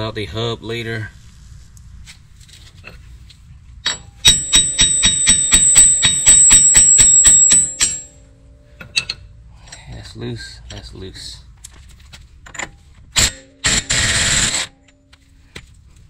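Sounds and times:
hammer striking metal studs: 3.9 - 8.2.

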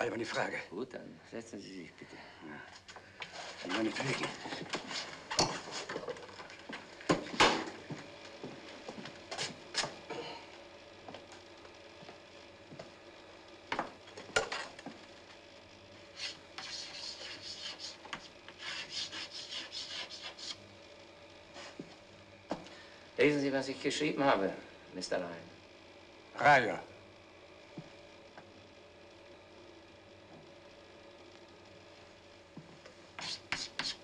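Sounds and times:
chalk scratching on a blackboard: 16.1 - 20.6, 33.2 - 34.0.

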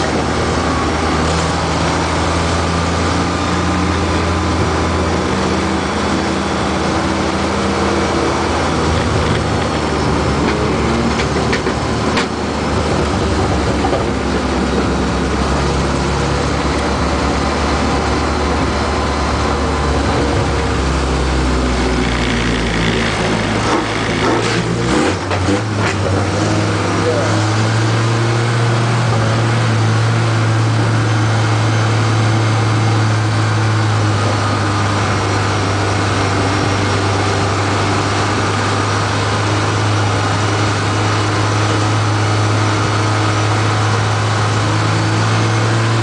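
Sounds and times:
truck engine droning: 0.0 - 46.0
clicks and rattles in cab: 8.9 - 12.4.

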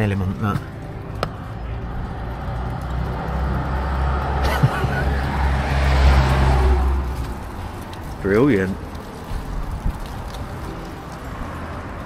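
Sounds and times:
vehicle driving past: 1.4 - 8.2.

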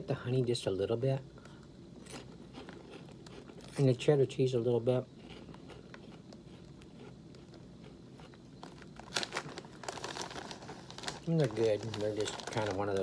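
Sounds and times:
foil snack bag crinkling: 5.2 - 13.0.

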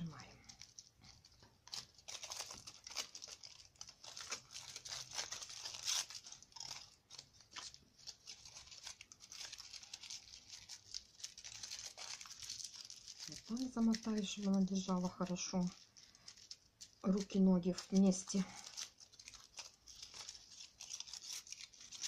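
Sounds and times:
aluminium foil crinkling: 0.0 - 22.0.

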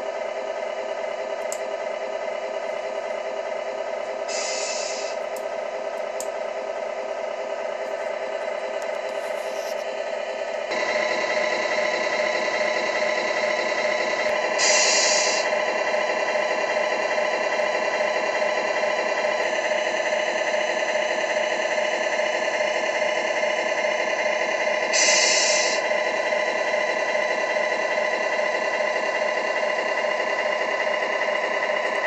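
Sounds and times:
truck engine idling: 0.0 - 32.0
air hiss: 4.3 - 5.2, 14.6 - 15.4, 25.0 - 25.8.

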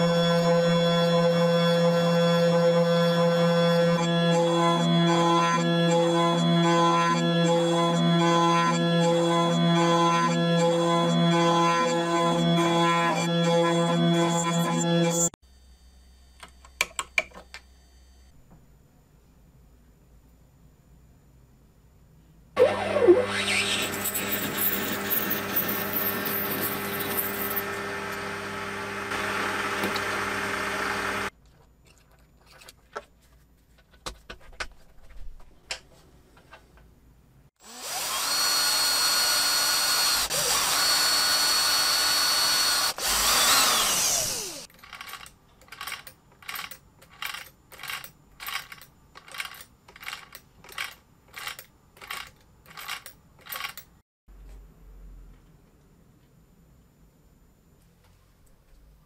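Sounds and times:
cordless drill boring into metal: 22.6 - 31.3, 37.6 - 44.7
lathe motor humming: 22.6 - 31.3, 37.7 - 44.7.

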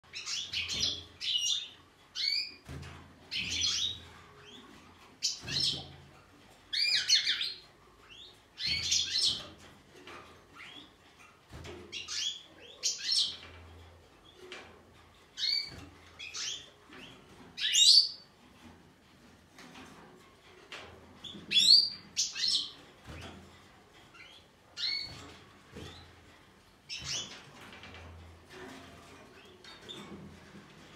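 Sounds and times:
goldfinches chirping and twittering: 0.1 - 2.6, 3.3 - 4.6, 6.7 - 9.5, 11.9 - 13.5, 15.4 - 18.2, 21.2 - 22.8, 24.2 - 25.2.

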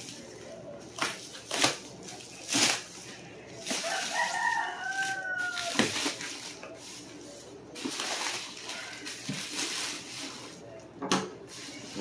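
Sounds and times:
rooster crowing: 3.7 - 6.0.

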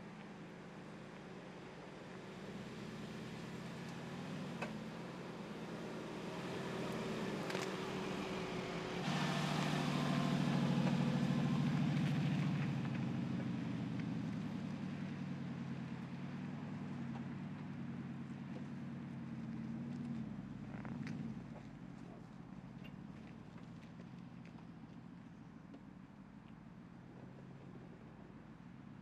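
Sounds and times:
suv engine running at low revs: 0.0 - 29.0.

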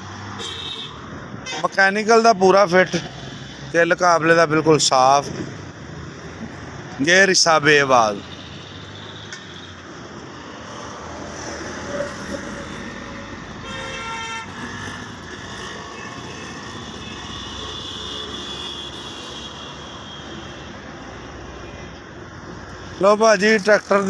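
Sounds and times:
road traffic noise: 0.0 - 24.0
vehicle horn: 0.4 - 1.7, 13.6 - 15.0, 15.6 - 20.8.

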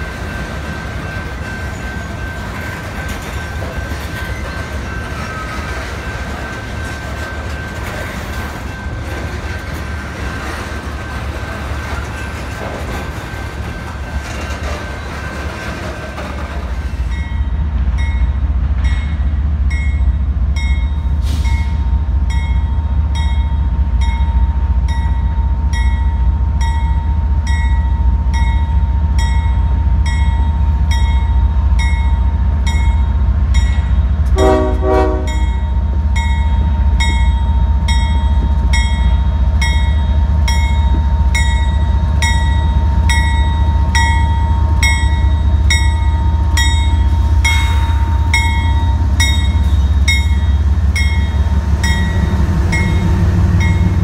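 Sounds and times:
train rumbling past: 0.0 - 54.0
train horn blast: 34.3 - 35.6.

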